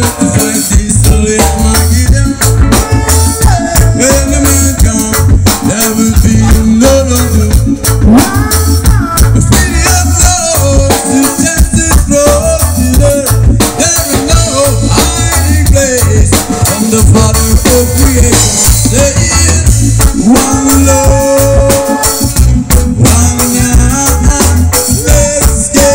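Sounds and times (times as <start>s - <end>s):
drum kit: 0.0s - 25.9s
electric guitar: 0.0s - 25.9s
heavy bass line: 0.0s - 25.9s
man singing: 0.0s - 25.9s.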